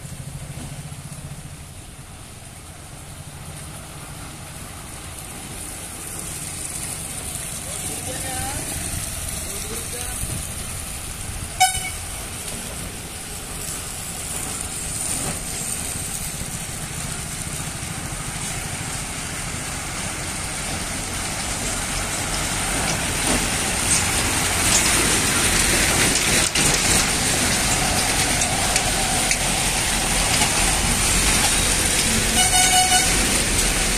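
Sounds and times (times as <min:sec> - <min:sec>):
diesel truck engines rumbling: 0:00.0 - 0:33.9
truck horn toot: 0:11.6 - 0:12.1, 0:32.3 - 0:33.3.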